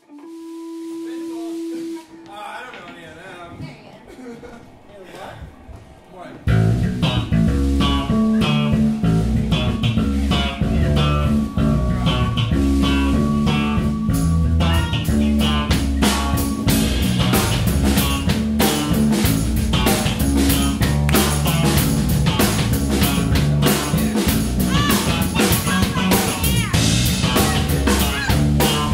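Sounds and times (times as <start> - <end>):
drum kit: 0.0 - 3.7, 6.4 - 28.9
bass guitar: 6.5 - 28.9
electric guitar: 6.5 - 28.9.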